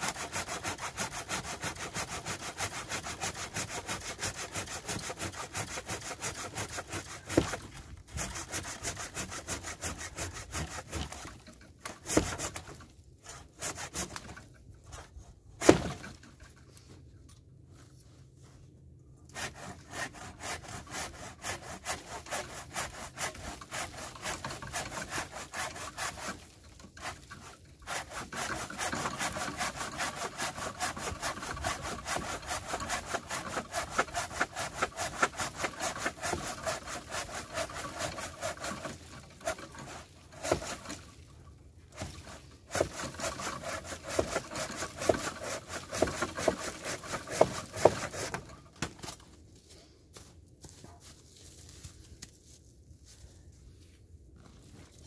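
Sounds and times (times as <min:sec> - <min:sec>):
hand saw cutting log: 0:00.0 - 0:16.5, 0:19.3 - 0:41.2, 0:41.9 - 0:49.2.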